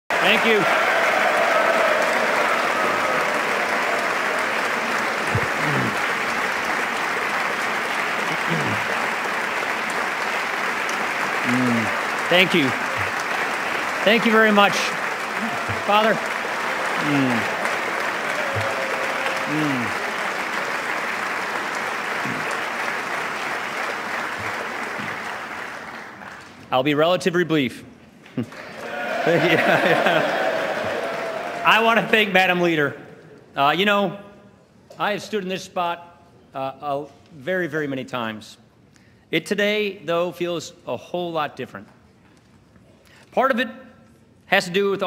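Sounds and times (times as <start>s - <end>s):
large crowd applauding: 0.0s - 26.7s, 28.5s - 33.0s.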